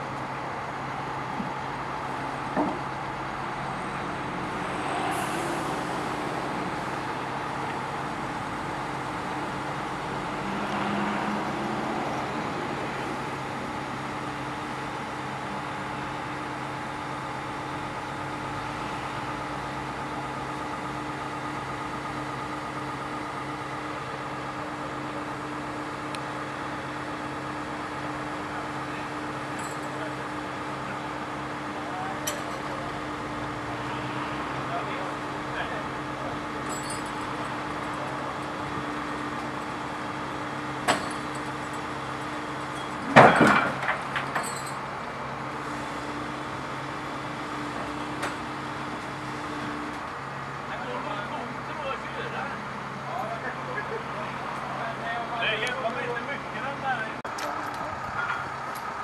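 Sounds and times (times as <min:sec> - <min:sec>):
diesel engine droning: 0:00.0 - 0:59.0
metallic clanking and rattling: 0:42.7 - 0:44.8.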